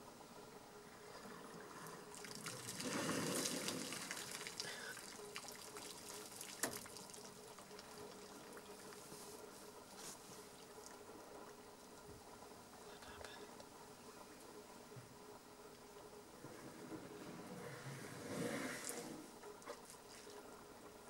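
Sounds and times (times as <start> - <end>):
water gushing and splashing: 1.0 - 9.0
water trickling and dripping: 1.2 - 9.2.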